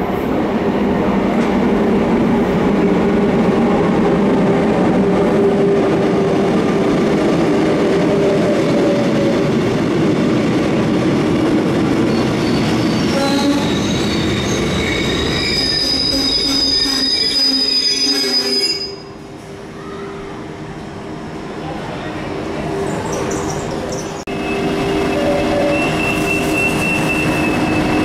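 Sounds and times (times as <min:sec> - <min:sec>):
train rumbling: 0:00.0 - 0:28.0
high-pitched metallic squeal: 0:12.1 - 0:19.1, 0:24.4 - 0:28.0.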